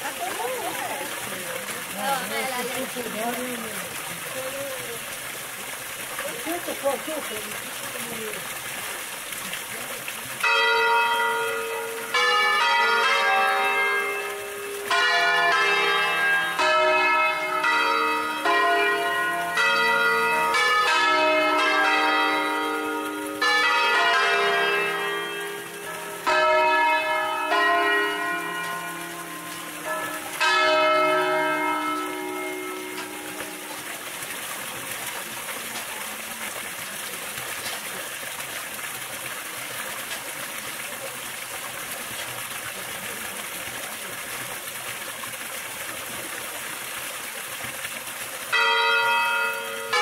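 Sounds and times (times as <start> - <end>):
church bells ringing: 10.4 - 34.2, 48.5 - 50.0.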